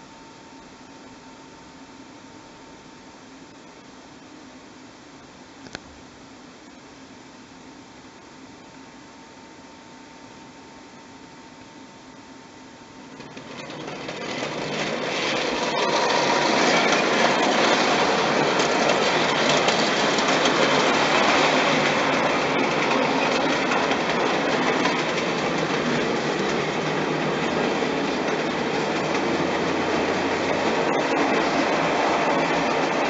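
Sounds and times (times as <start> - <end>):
toy train rattling on metal track: 13.2 - 33.0.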